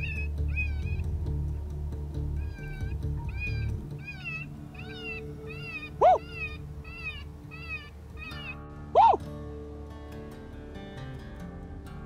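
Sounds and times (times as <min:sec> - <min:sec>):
rabbit distress call cries: 0:00.0 - 0:01.1, 0:02.4 - 0:09.2
low background music: 0:00.0 - 0:12.0.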